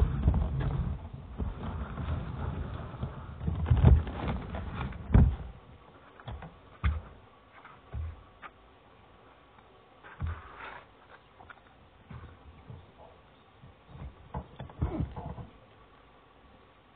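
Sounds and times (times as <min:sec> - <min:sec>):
microphone handling rubbing: 0:10.0 - 0:15.6.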